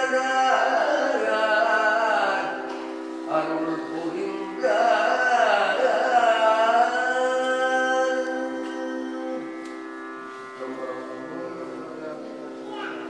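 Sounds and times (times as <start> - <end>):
wavering melodic voice: 3.3 - 13.0.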